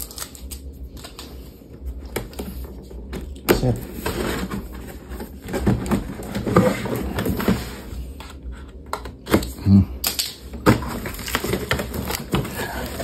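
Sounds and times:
packaging tearing and rustling: 0:00.0 - 0:01.4, 0:09.3 - 0:13.0.

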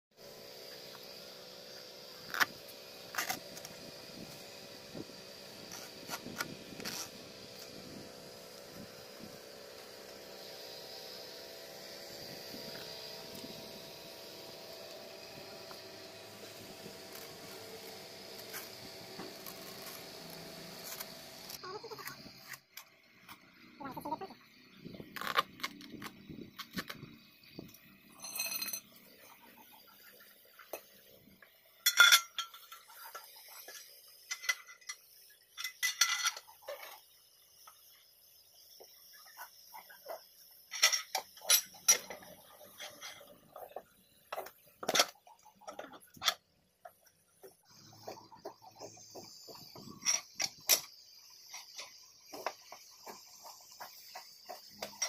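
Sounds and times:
metal tools clinking on tyre: 0:28.1 - 0:29.3, 0:31.8 - 0:32.9, 0:35.6 - 0:37.0.

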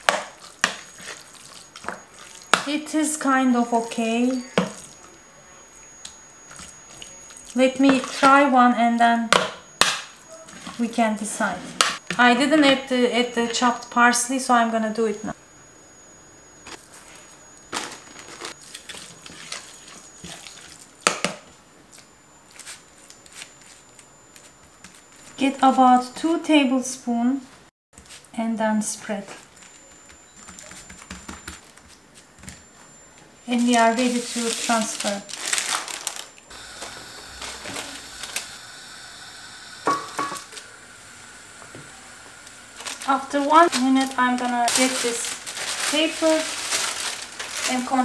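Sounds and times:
spoon stirring and scraping: 0:18.6 - 0:20.8
baking paper rustling: 0:33.5 - 0:36.5, 0:42.8 - 0:48.0
plastic bag crinkling: 0:33.6 - 0:36.5, 0:42.8 - 0:48.0.

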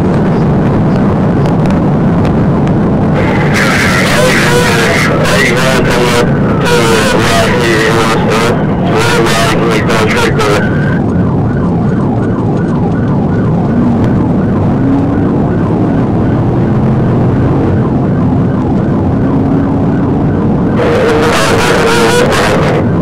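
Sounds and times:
engine and road noise: 0:00.0 - 0:23.0
loud noisy burst: 0:03.1 - 0:11.0, 0:20.8 - 0:23.0
police siren yelping: 0:03.1 - 0:23.0.

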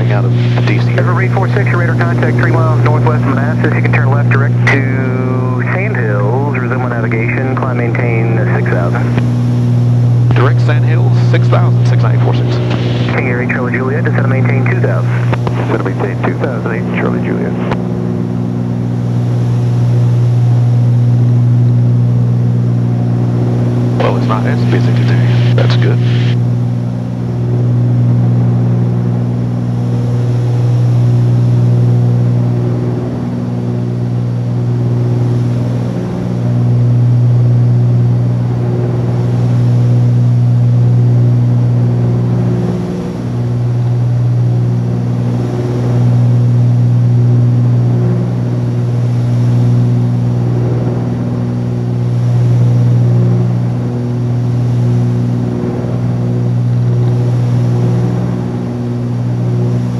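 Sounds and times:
propeller aircraft engines droning: 0:00.0 - 0:59.9.

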